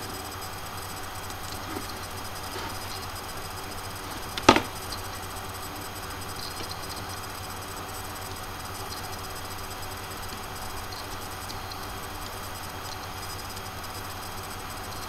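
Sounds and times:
faint low hum: 0:00.0 - 0:15.0
steady hiss: 0:00.0 - 0:15.0
sharp knock: 0:04.4 - 0:04.8.

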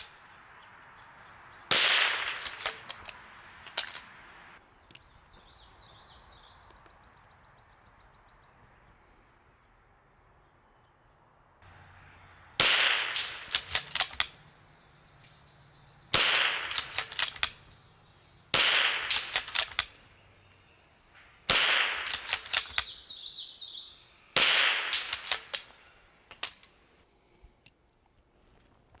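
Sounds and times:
rifle shots: 0:01.7 - 0:03.2, 0:12.6 - 0:14.5, 0:16.1 - 0:17.6, 0:18.5 - 0:20.0, 0:21.5 - 0:23.0, 0:24.4 - 0:25.7.

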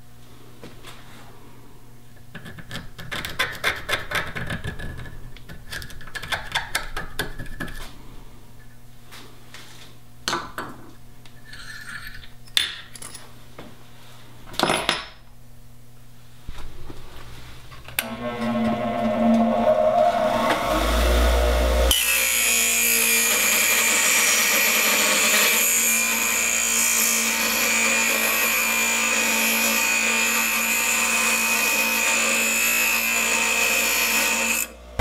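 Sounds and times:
metal tools scraping and clinking: 0:11.4 - 0:13.3.

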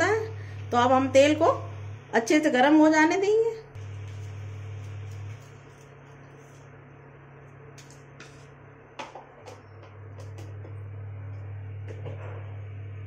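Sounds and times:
gas burner hum: 0:00.0 - 0:13.0
oil hissing in a pot: 0:03.8 - 0:06.7.

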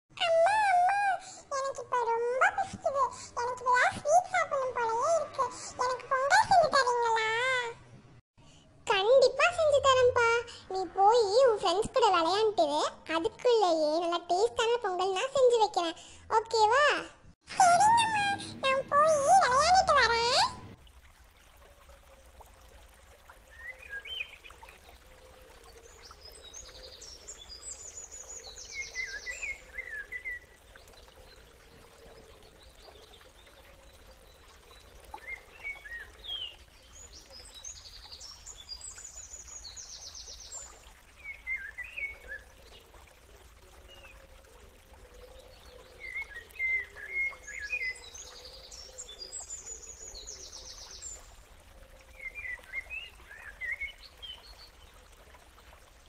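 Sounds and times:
birdsong chirps and trills: 0:22.0 - 0:55.9.

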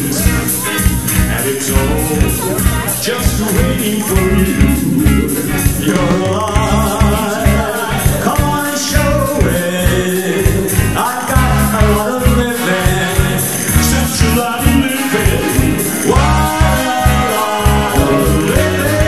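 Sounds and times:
men singing into microphones: 0:00.0 - 0:19.0
upbeat accompaniment with bass beat: 0:00.0 - 0:19.0.

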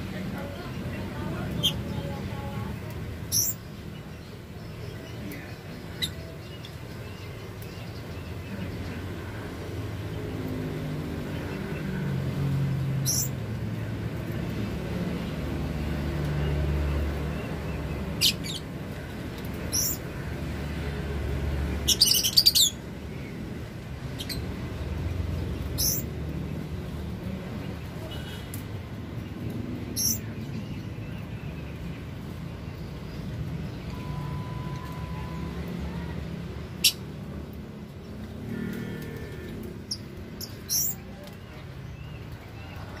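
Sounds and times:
lovebirds chirping: 0:00.2 - 0:09.4, 0:13.0 - 0:13.4, 0:15.9 - 0:20.8, 0:21.6 - 0:37.1, 0:39.1 - 0:43.0.

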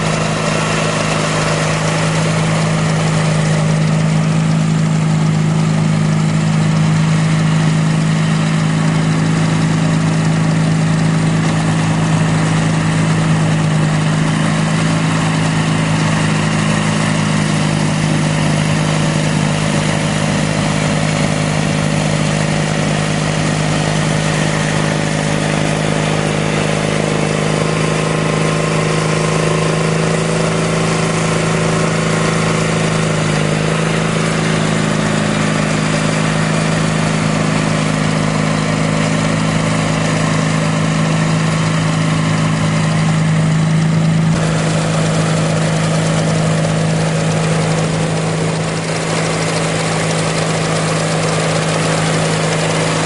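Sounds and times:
garden tractor engine running: 0:00.0 - 0:53.0
snowblower running: 0:00.0 - 0:53.0.

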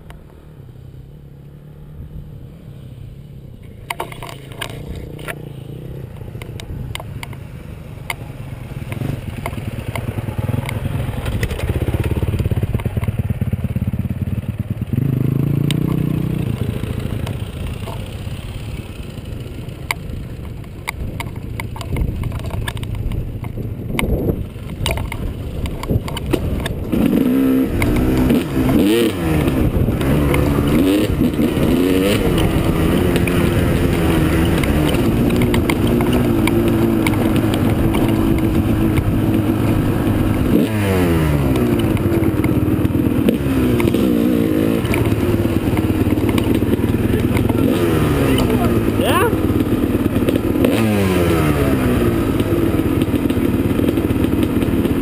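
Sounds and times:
bike rattles and knocks: 0:03.6 - 0:05.4, 0:08.1 - 0:55.0
dirt bike engine revving: 0:09.0 - 0:19.5, 0:25.1 - 0:55.0.

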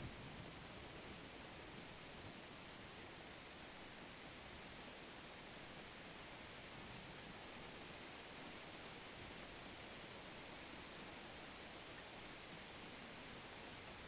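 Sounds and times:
faint background hiss: 0:00.0 - 0:14.0
tiny ticks: 0:04.5 - 0:04.7.

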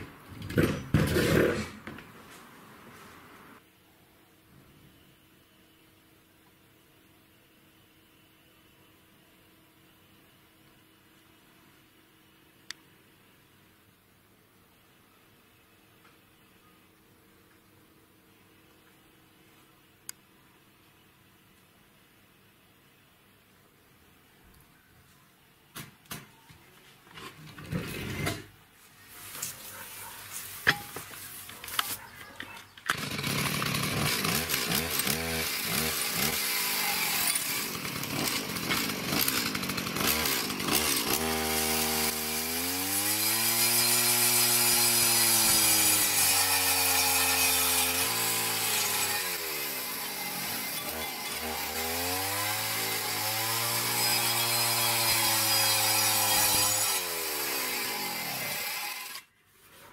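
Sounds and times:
cutting disc grinding brick: 0:00.4 - 0:01.9, 0:32.8 - 0:59.2
chainsaw engine revving: 0:00.5 - 0:01.8, 0:32.9 - 0:59.2.

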